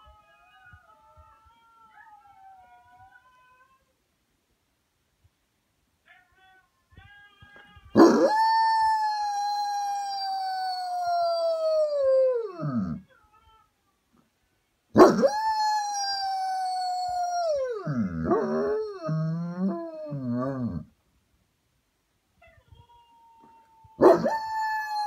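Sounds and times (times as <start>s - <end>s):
dog howling: 8.0s - 13.0s, 15.0s - 20.9s, 23.3s - 25.0s
husky howls from phone: 8.0s - 13.0s, 15.0s - 20.8s, 23.0s - 25.0s.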